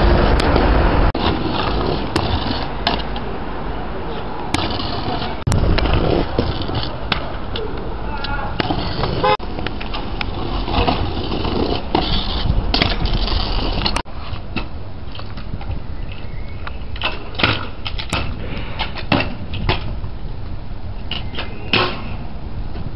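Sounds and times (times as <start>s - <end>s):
scooter wheels rolling on concrete: 0.0s - 22.9s
scooter deck clacking on ground: 0.2s - 3.3s, 4.5s - 16.3s, 17.0s - 20.1s.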